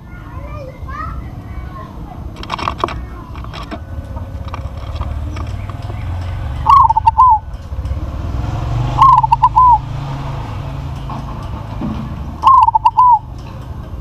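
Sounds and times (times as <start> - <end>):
dove cooing: 2.4 - 7.6, 8.8 - 10.0, 12.3 - 13.4.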